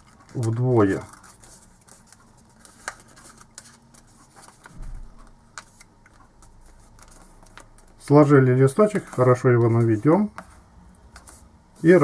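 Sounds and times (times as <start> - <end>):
paper rustling and crinkling: 0.0 - 12.0.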